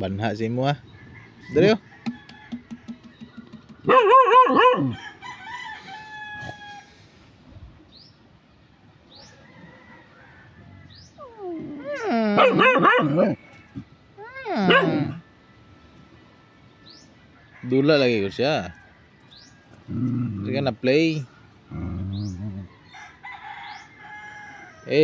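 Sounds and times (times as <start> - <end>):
dogs whining and yelping: 3.8 - 5.0, 11.0 - 15.3.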